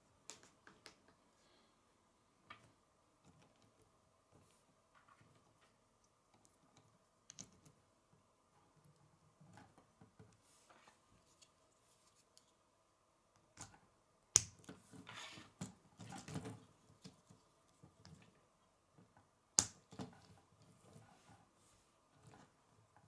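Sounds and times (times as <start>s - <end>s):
plastic pieces snapping together: 14.3s - 14.7s, 19.6s - 20.1s.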